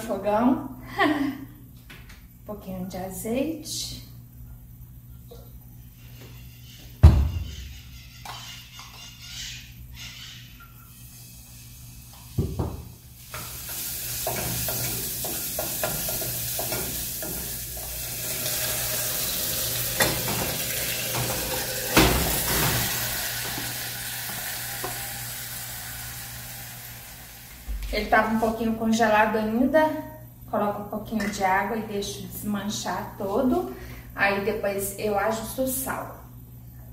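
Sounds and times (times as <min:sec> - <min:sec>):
oil sizzling in a saucepan: 0:10.8 - 0:27.7
spoon stirring and knocking pan: 0:14.2 - 0:17.6.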